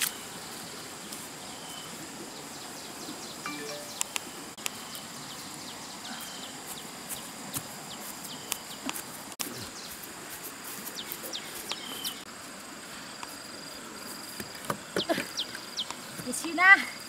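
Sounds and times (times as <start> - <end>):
high drone of insects: 0.0 - 17.0
birds chirping: 10.9 - 12.3, 14.8 - 16.7.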